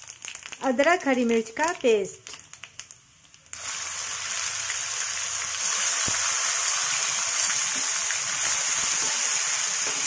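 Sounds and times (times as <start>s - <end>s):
paste sizzling in hot oil: 2.8s - 10.0s.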